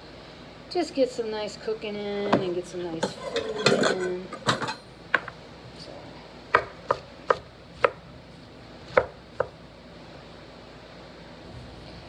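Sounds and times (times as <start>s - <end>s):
knife chopping on wooden board: 6.5s - 8.0s, 8.9s - 9.6s.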